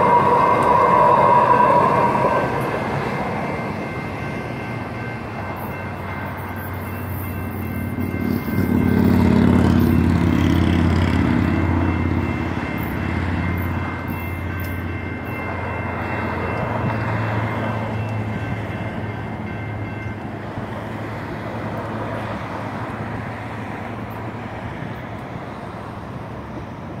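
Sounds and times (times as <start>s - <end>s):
electronic crossing bells ringing: 0.0s - 21.5s
light rail train rumbling: 0.0s - 27.0s.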